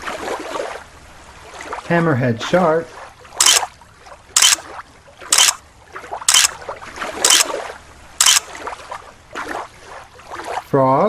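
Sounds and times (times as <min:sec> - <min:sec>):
watery noise: 0:03.1 - 0:10.7.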